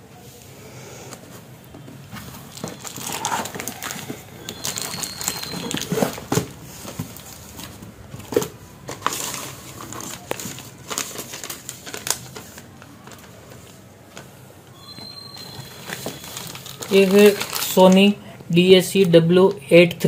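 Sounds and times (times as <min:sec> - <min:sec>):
packaging rustling and crinkling: 0:01.2 - 0:18.2.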